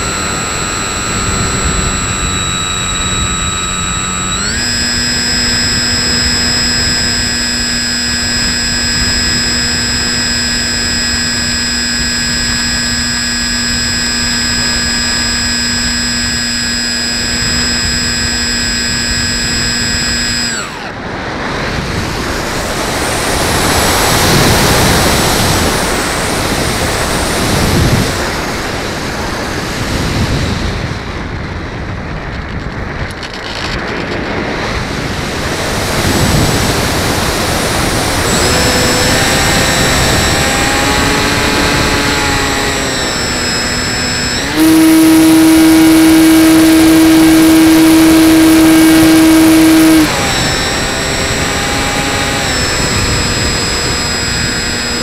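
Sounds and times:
electric motor whining: 0.0 - 31.0, 32.3 - 55.0.

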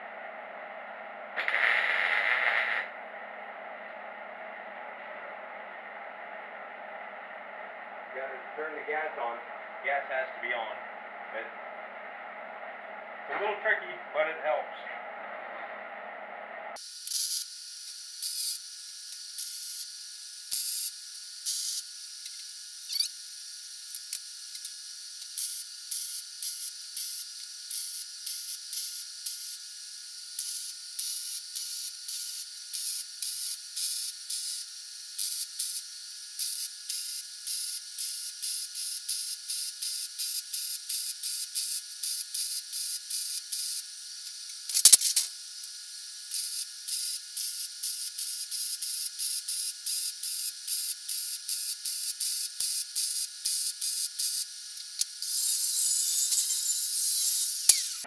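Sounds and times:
welding arc crackle: 1.4 - 3.0, 16.8 - 58.0.

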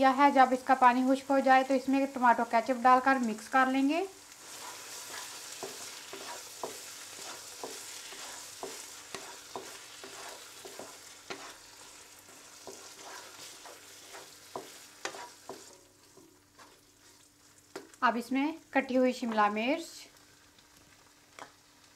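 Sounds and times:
meat sizzling: 0.0 - 21.9
wooden spatula scraping a wok: 4.3 - 18.0.

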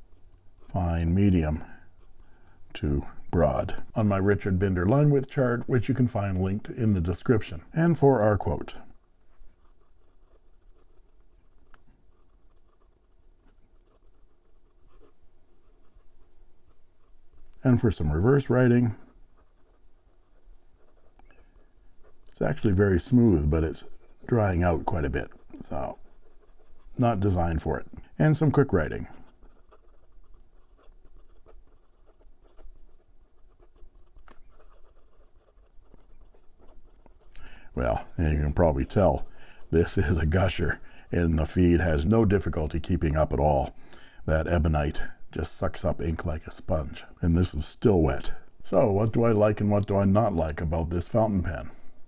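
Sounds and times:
pen nib scratching paper: 0.0 - 3.8, 5.7 - 43.0.

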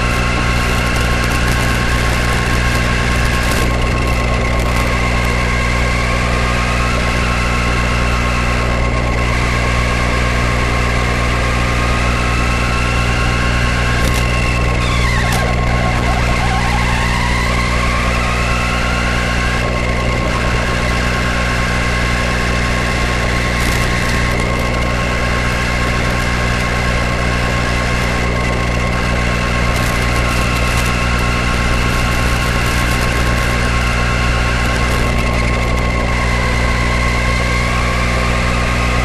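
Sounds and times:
constant high tone: 0.0 - 39.0
electrical hum and buzz: 0.0 - 39.0
motor whine: 0.0 - 39.0.

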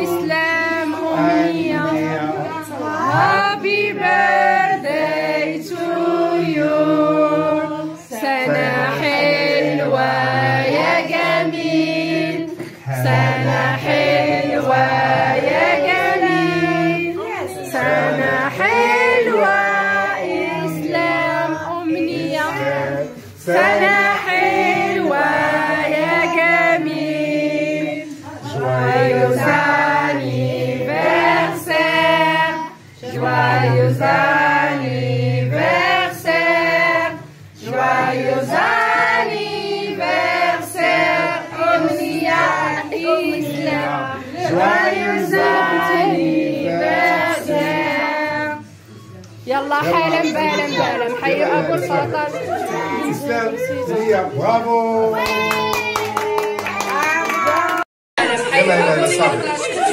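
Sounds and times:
women and children singing: 0.0 - 54.6, 55.2 - 59.9.

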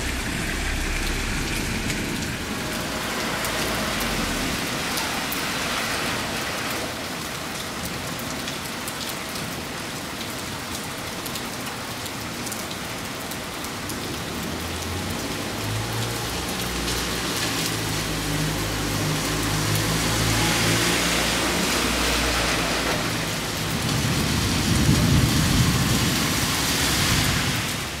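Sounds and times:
low droning rumble: 0.0 - 4.7
thunder rumbling: 0.0 - 4.9, 22.8 - 27.7
rain falling on street: 0.0 - 28.0.

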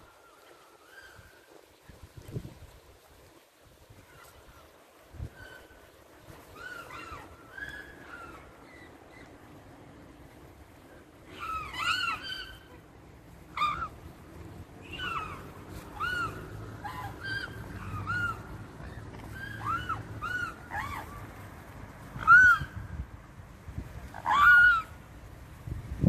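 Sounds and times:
young swans whistled calls: 0.0 - 1.7, 5.2 - 9.5, 11.2 - 14.2, 14.8 - 21.4, 22.0 - 22.9, 24.1 - 25.0.

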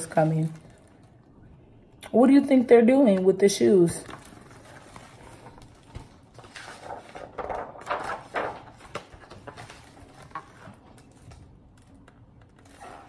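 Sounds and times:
book page turning: 4.1 - 12.8.

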